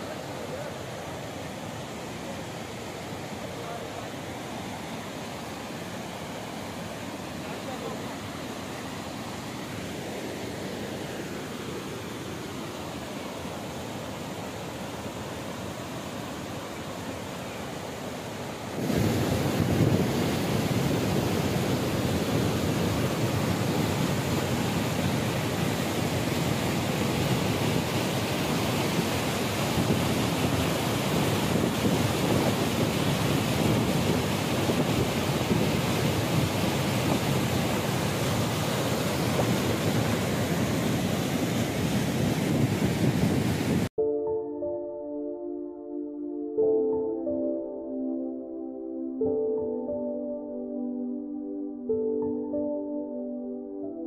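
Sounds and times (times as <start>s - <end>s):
mountain stream rushing: 0.0s - 43.9s
waterfall rushing: 0.0s - 43.9s
music with held tones: 44.0s - 54.0s.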